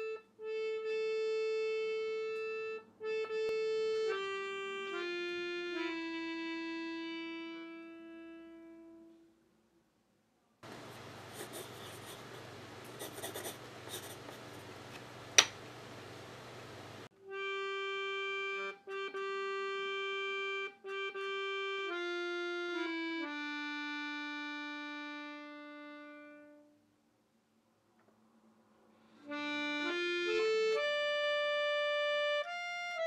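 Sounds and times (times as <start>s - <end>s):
accordion long held notes: 0.0s - 9.2s, 17.0s - 26.8s, 29.2s - 33.0s.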